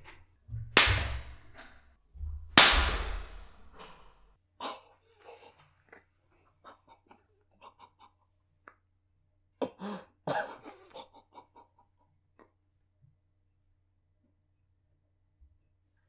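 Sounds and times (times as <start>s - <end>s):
man coughing: 9.6s - 11.7s.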